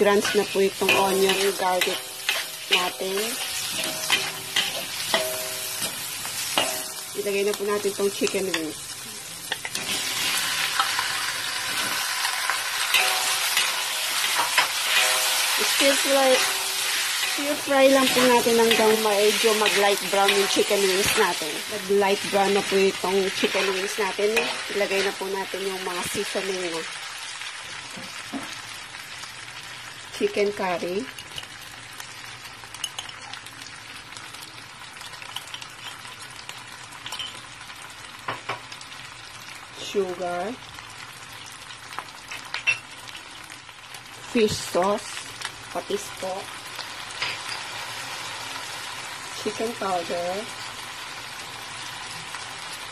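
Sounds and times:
chicken sizzling in hot oil: 0:00.0 - 0:52.9
metal spatula scraping pan: 0:00.1 - 0:07.0, 0:12.8 - 0:21.4.

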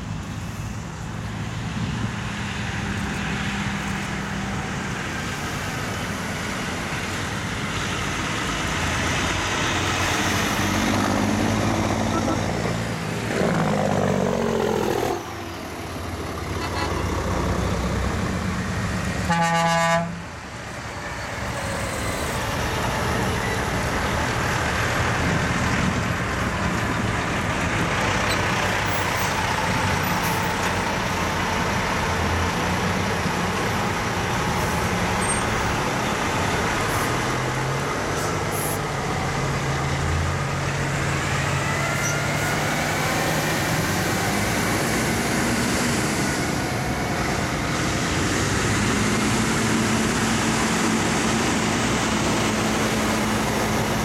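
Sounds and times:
trucks driving past: 0:00.0 - 0:54.0
truck horn blast: 0:19.2 - 0:20.3.

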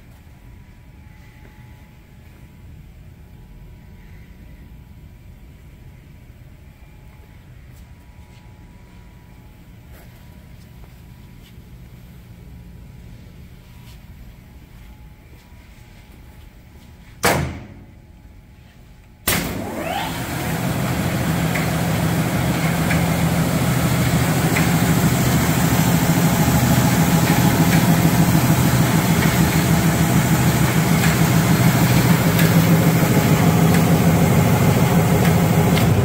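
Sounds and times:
belt sander motor whining and humming: 0:19.6 - 0:36.0.

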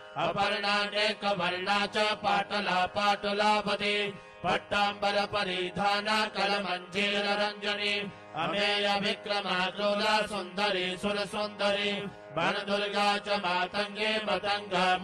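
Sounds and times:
voice chanting mantra: 0:00.2 - 0:15.0.

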